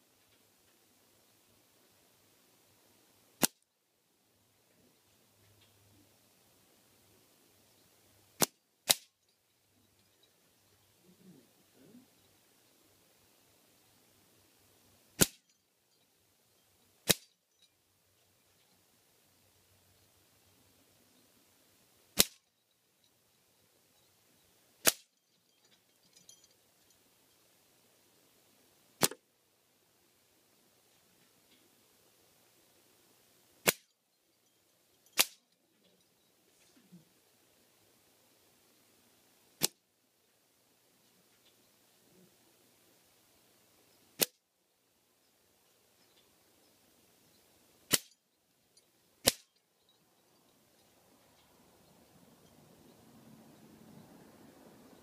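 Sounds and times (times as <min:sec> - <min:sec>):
pellets striking a target: 0:15.2 - 0:15.5, 0:17.0 - 0:17.3, 0:49.2 - 0:49.5
metallic target clatter: 0:24.8 - 0:26.7, 0:35.0 - 0:36.0.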